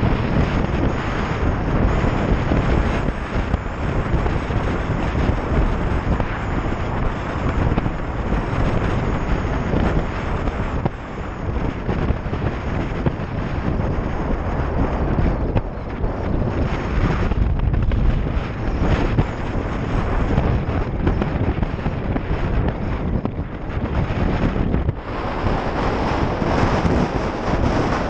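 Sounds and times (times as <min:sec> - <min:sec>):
wind buffeting microphone: 0:00.0 - 0:28.0
road noise: 0:21.7 - 0:28.0.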